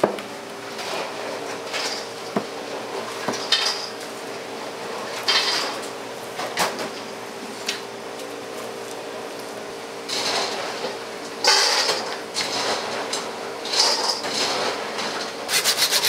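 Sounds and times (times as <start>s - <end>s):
knife scraping on cutting board: 15.5s - 16.0s.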